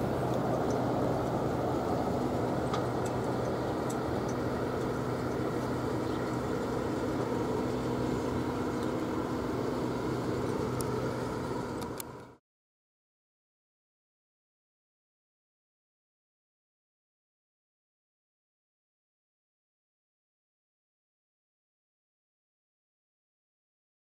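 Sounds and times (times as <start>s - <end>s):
low engine-like hum: 0.0s - 12.4s.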